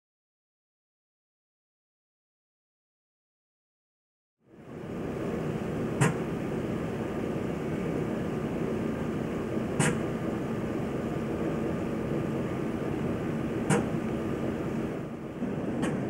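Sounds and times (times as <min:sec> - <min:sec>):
low rumbling depot yard noise: 0:04.5 - 0:16.0.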